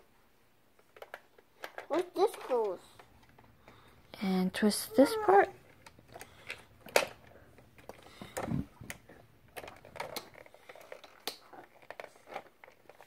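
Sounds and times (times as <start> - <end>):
plastic toy parts clicking: 0.9 - 2.8, 9.6 - 13.0.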